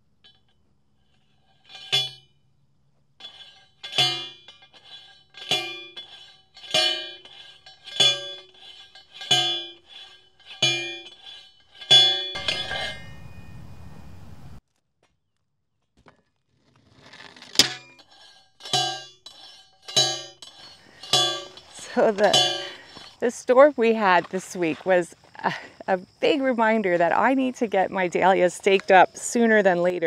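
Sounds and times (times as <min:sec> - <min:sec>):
post driver clanging on stake: 0:03.2 - 0:09.8, 0:11.8 - 0:13.9, 0:18.6 - 0:24.8.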